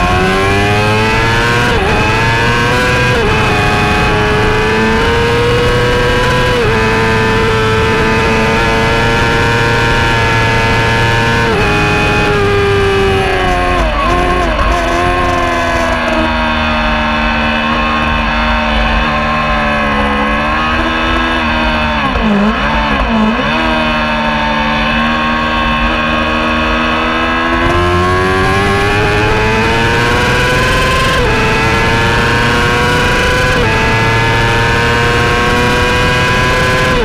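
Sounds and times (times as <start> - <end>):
racing motorcycle engine: 0.0 - 37.0
motorcycle gear upshifts: 1.2 - 23.8.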